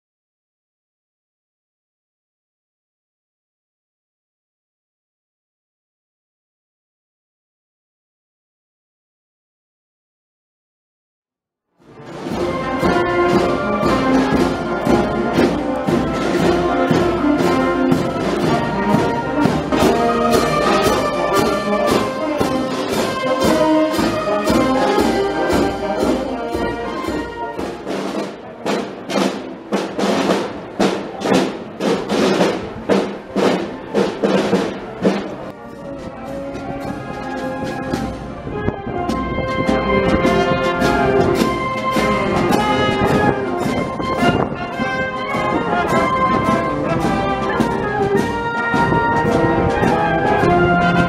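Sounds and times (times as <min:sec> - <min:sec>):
marching brass band playing: 0:11.8 - 0:51.0
steady drum beat: 0:12.0 - 0:38.4, 0:39.1 - 0:51.0.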